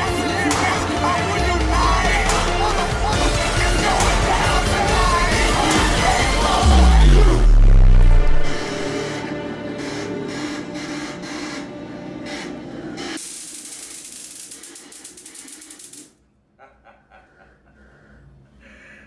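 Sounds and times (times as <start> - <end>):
dark background music: 0.0 - 13.2
loud crackling hiss: 13.2 - 16.1.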